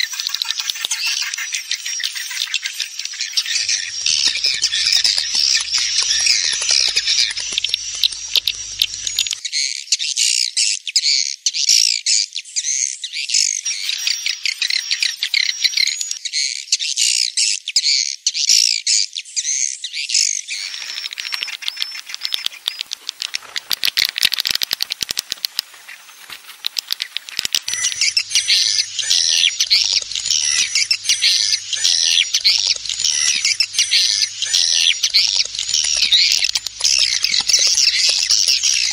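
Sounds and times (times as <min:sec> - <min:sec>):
birds chirping and twittering: 0:00.0 - 0:10.1, 0:12.5 - 0:17.2, 0:19.4 - 0:38.9
wings flapping: 0:02.3 - 0:09.4, 0:20.5 - 0:38.9
rapid clicking: 0:03.6 - 0:09.4, 0:20.6 - 0:38.9.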